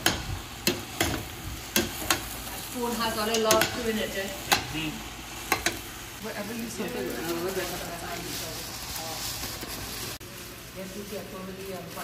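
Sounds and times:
vegetables sizzling: 0:00.0 - 0:12.0
metal spoon knocking pot: 0:03.3 - 0:03.8.

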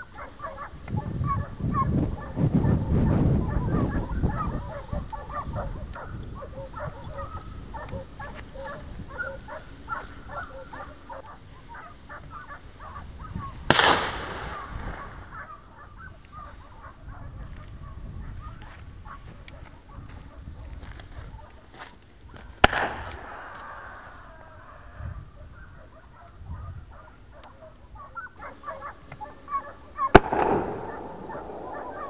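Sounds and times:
hounds baying: 0:00.0 - 0:32.0
loud shotgun shot: 0:13.7 - 0:15.3, 0:22.6 - 0:23.8, 0:30.1 - 0:32.0.

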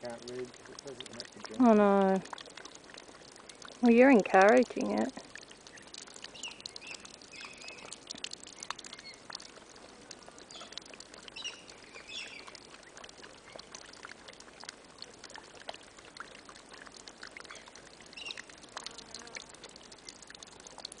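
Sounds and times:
light trickling hiss: 0:00.0 - 0:21.0
faint bird chirps: 0:05.7 - 0:09.2, 0:10.5 - 0:13.6.

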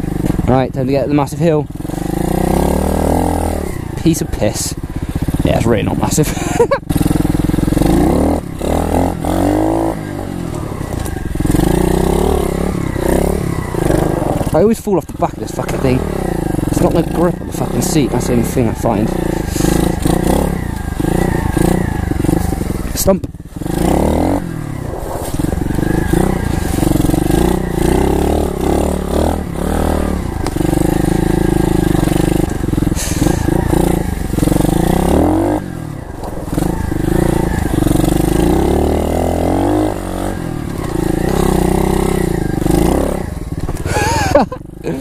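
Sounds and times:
pit bike engine revving: 0:00.0 - 0:45.0.

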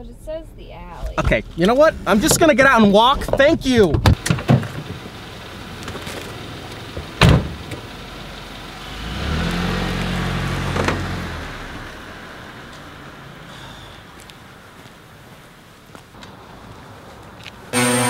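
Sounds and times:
car engine driving off: 0:01.0 - 0:18.0
car door slamming: 0:01.2 - 0:05.2, 0:05.8 - 0:07.9, 0:10.6 - 0:11.2.

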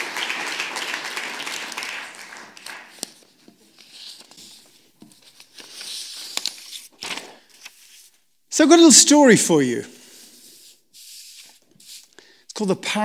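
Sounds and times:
audience applause: 0:00.0 - 0:03.1
paper rustling: 0:02.6 - 0:08.2, 0:10.0 - 0:12.2.

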